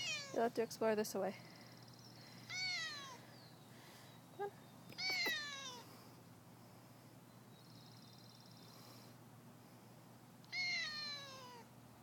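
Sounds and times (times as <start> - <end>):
cat meowing: 0.0 - 0.4, 2.5 - 3.2, 5.0 - 5.8, 10.5 - 11.7.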